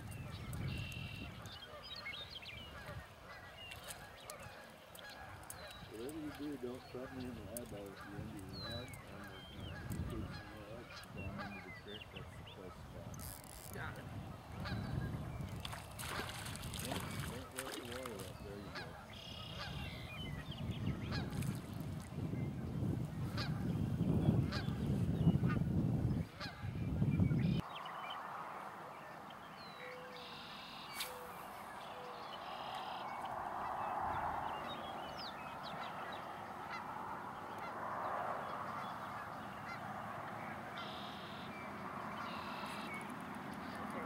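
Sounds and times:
geese honking: 0:02.7 - 0:12.0, 0:16.8 - 0:20.0, 0:35.6 - 0:44.0.

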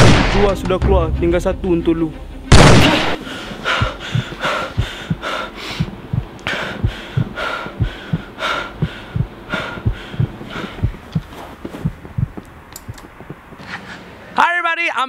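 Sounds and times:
quick breathing: 0:03.2 - 0:12.4, 0:13.6 - 0:14.2
heartbeat thumping: 0:03.2 - 0:13.6.

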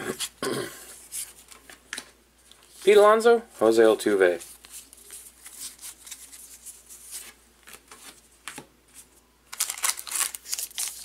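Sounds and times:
plastic wrapper crinkling: 0:09.5 - 0:11.0.

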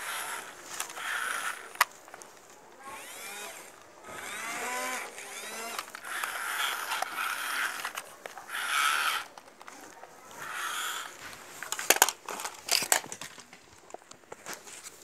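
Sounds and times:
toy motors and gears grinding: 0:00.0 - 0:02.2, 0:02.8 - 0:13.2
plastic knocks and clatters: 0:11.6 - 0:14.6.

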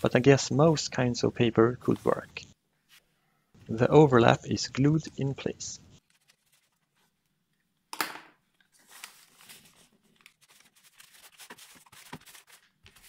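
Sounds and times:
paper rustling and crinkling: 0:06.0 - 0:07.2, 0:08.6 - 0:13.0.

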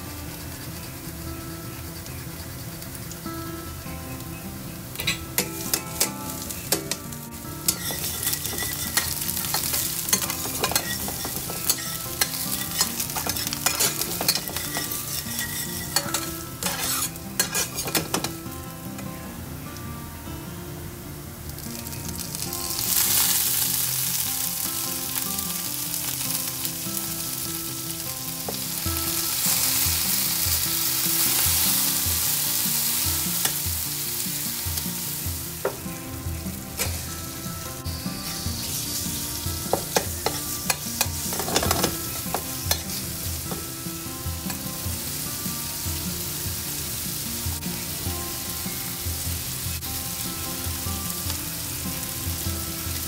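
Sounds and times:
food sizzling in hot oil: 0:00.0 - 0:19.1, 0:21.5 - 0:53.0
metal spatula scraping pan: 0:07.7 - 0:18.3.

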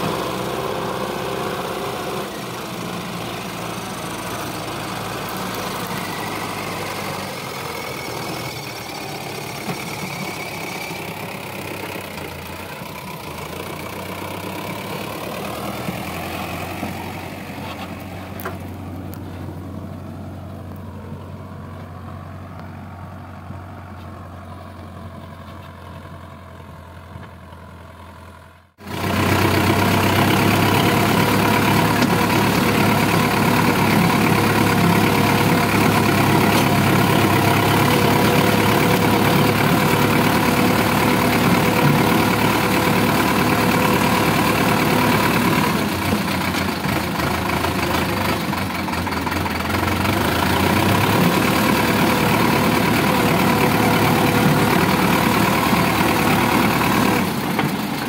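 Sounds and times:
diesel tractor engine running: 0:00.0 - 0:58.0.

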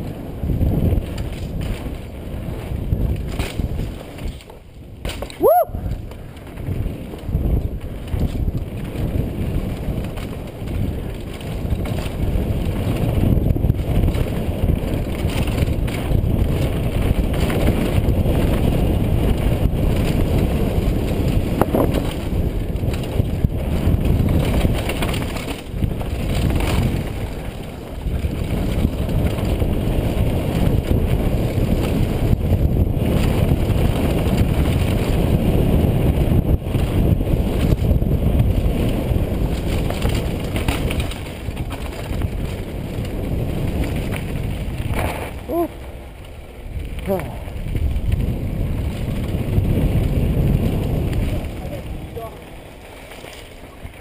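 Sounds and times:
bike knocks and rattles: 0:00.0 - 0:45.5
tyre noise: 0:00.0 - 0:54.0
wind buffeting microphone: 0:00.0 - 0:54.0.

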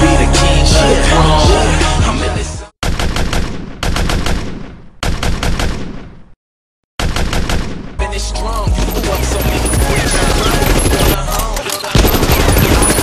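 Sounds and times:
automatic gunfire bursts: 0:08.8 - 0:11.2, 0:11.9 - 0:13.0.

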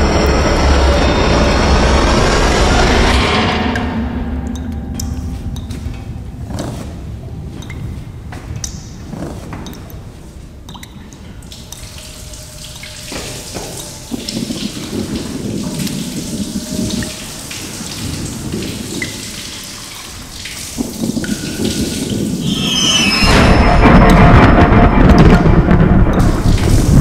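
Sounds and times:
low rumble: 0:00.0 - 0:09.2, 0:20.8 - 0:27.0
noisy wash: 0:00.0 - 0:27.0
water dripping and splashing: 0:04.5 - 0:23.0, 0:26.1 - 0:27.0.

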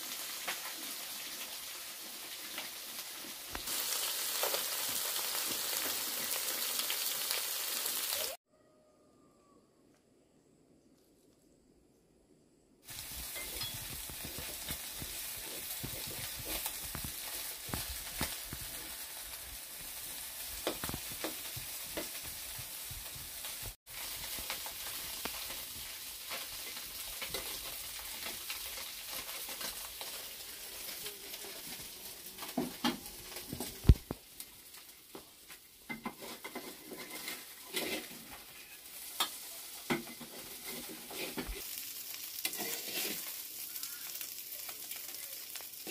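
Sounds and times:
food sizzling in wok: 0:00.0 - 0:08.4, 0:12.8 - 0:45.9
metal spatula scraping wok: 0:35.9 - 0:43.6.

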